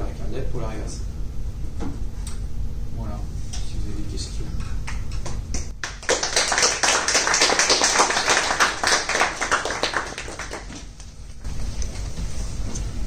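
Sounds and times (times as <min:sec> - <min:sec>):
audience clapping: 0:04.8 - 0:11.2.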